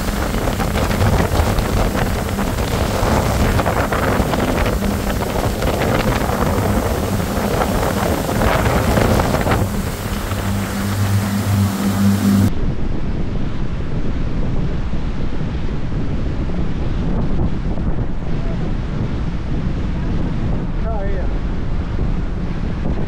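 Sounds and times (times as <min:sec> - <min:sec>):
boat engine humming: 0:00.0 - 0:12.5
water rushing past hull: 0:00.0 - 0:12.6
wind buffeting microphone: 0:00.0 - 0:23.0.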